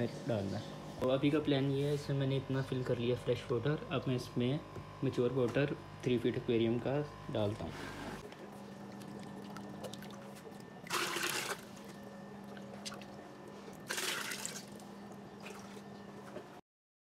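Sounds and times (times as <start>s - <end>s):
water splashing pours: 8.8s - 13.2s, 13.8s - 14.8s.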